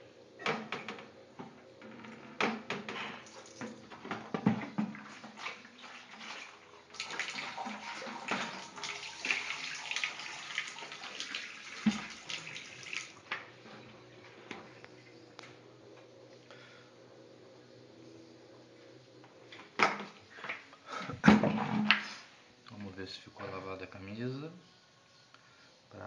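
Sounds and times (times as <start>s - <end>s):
washing machine sloshing: 3.2s - 13.8s.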